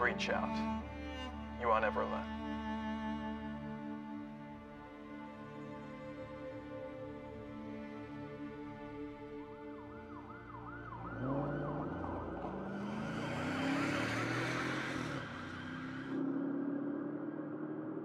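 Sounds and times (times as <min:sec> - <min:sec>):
background music: 0:00.0 - 0:16.0
slower siren wail: 0:09.8 - 0:16.2
police siren yelping: 0:10.0 - 0:13.0.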